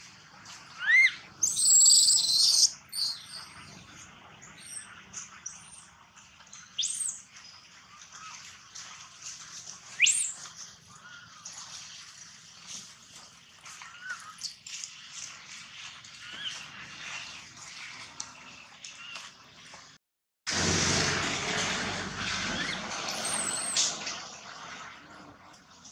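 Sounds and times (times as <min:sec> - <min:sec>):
baby monkey crying and screaming: 0:00.7 - 0:03.6.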